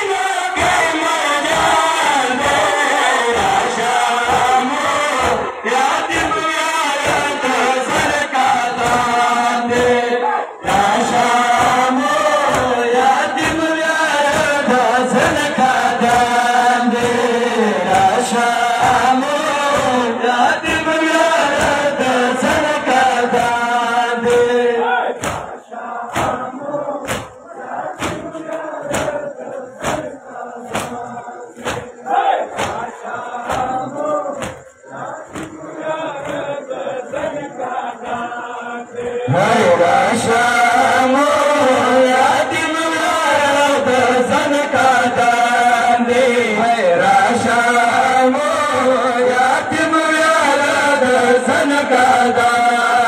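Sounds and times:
crowd of men chanting: 0.0 - 53.0
rhythmic chest beating slaps: 0.0 - 53.0
scattered voices: 0.0 - 53.0.

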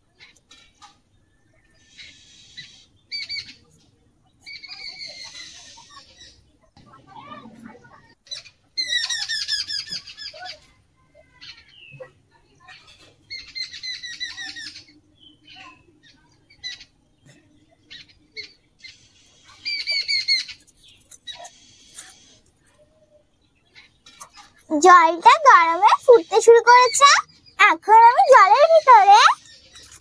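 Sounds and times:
bird chattering: 24.1 - 30.0.

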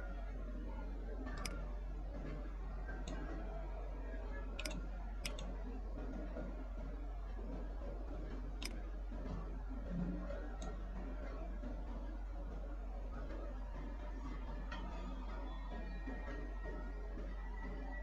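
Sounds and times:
steady low hum: 0.0 - 18.0
computer mouse clicking: 1.4 - 1.6, 4.6 - 5.5, 8.6 - 8.8.

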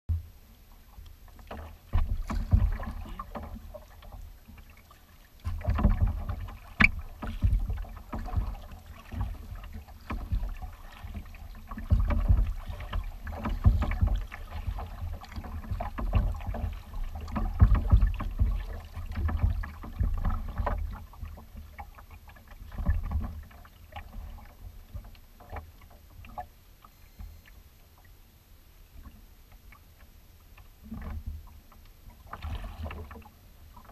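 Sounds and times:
water splashing at kayak hull: 0.1 - 27.3, 28.8 - 33.9.

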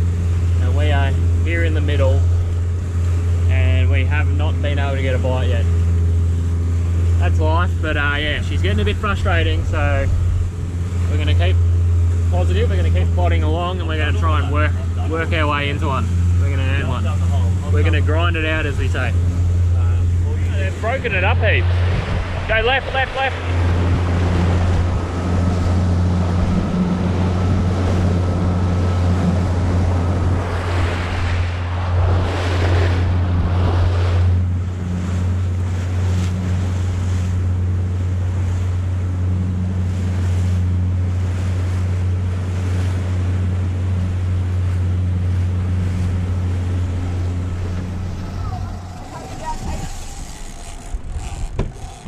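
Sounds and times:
boat engine running: 0.0 - 52.0
water splashing along hull: 0.0 - 52.0
wind on microphone: 18.2 - 36.6, 44.6 - 52.0.

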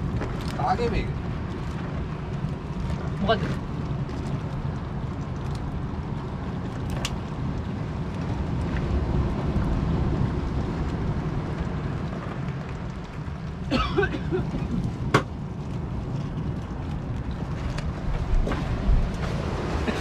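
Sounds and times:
boat engine rumbling: 0.0 - 20.0.

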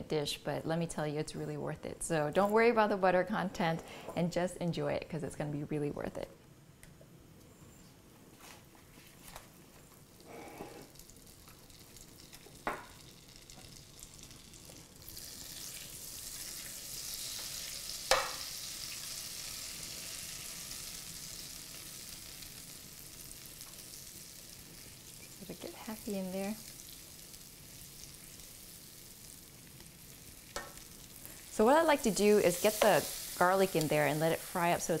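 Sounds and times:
butter sizzling in a frying pan: 10.8 - 35.0.

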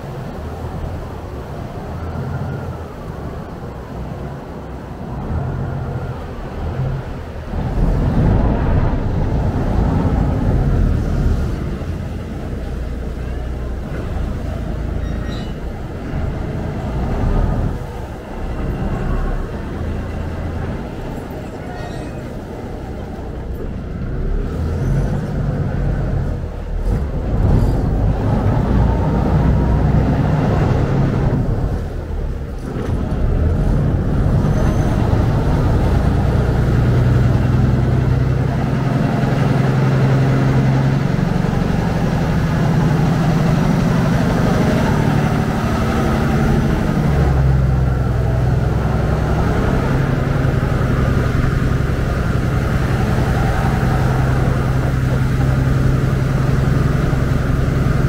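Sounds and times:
boat engine drone: 0.0 - 58.0
water rushing along hull: 0.0 - 58.0.

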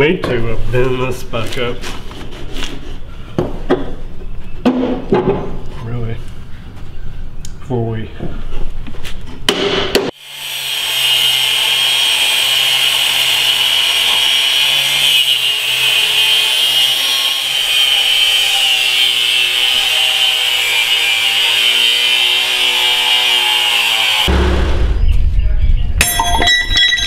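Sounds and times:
angle grinder cutting steel: 10.2 - 24.6.

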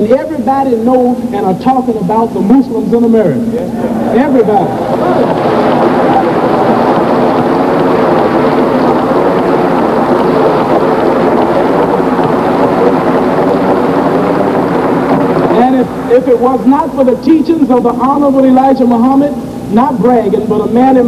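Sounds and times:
audience applauding and cheering: 3.8 - 16.1.

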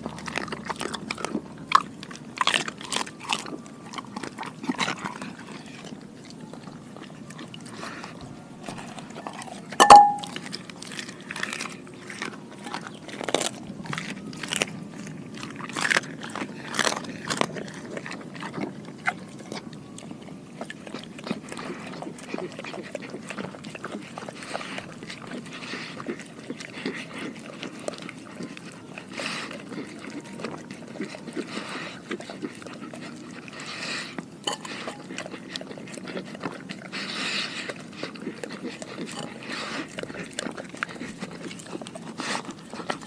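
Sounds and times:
dog licking bowl: 0.0 - 13.0, 13.9 - 43.0
dog chewing fish and bone: 0.0 - 43.0
clink against glass bowl: 9.8 - 10.4.

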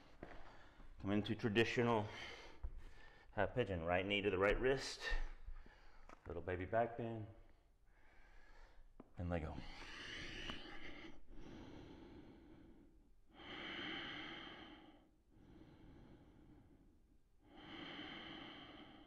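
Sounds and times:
slow deep breathing: 0.0 - 1.0, 1.8 - 3.4, 5.0 - 6.3, 7.8 - 19.0.

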